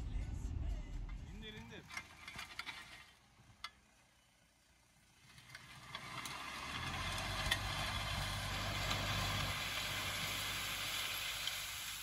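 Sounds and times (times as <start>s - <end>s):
tractor engine drone: 0.0s - 12.0s
harrow discs cutting soil: 1.8s - 3.8s, 5.0s - 12.0s.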